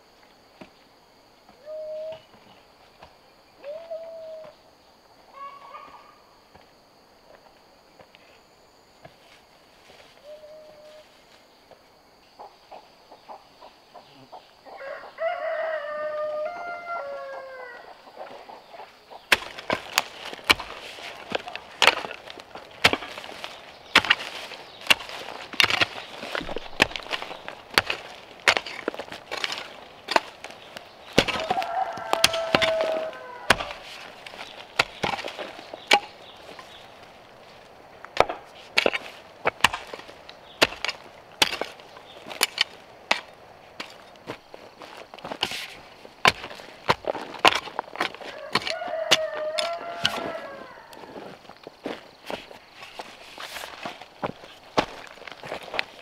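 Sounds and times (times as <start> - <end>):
rooster crowing: 14.7 - 18.2, 31.3 - 33.9, 48.2 - 51.4
hoe chopping into soil: 19.3 - 36.9, 38.1 - 44.4, 45.2 - 51.1.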